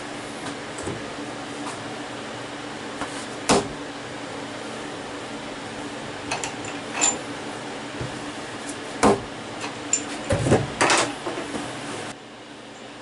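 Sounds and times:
machine shop hum: 0:00.0 - 0:13.0.

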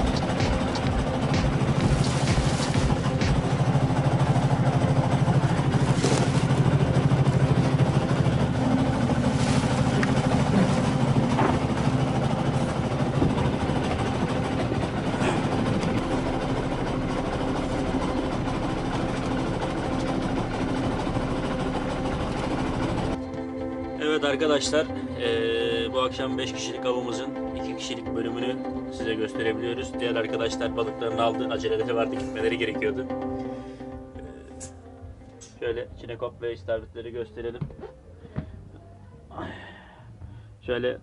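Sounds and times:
boat engine droning: 0:00.0 - 0:40.7
plastic bags rustling: 0:05.7 - 0:06.6, 0:09.0 - 0:11.1.

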